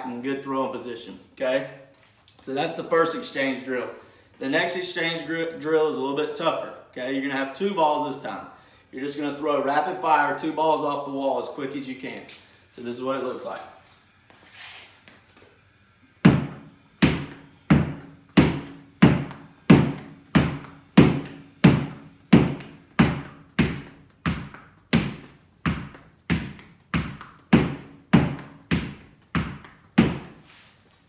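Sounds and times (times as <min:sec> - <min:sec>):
tennis balls hitting a wall: 0:16.2 - 0:30.5.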